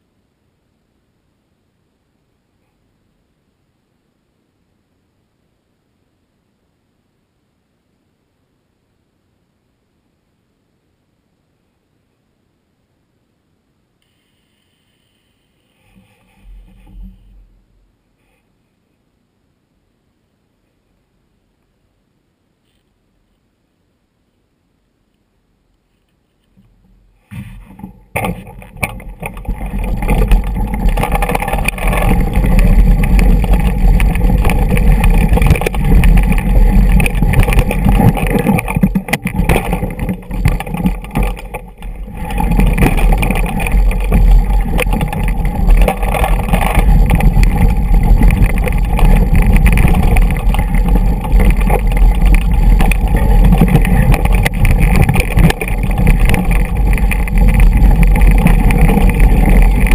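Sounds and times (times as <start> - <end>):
bike rattling over stones: 26.7 - 59.9
wind buffeting microphone: 28.6 - 59.9.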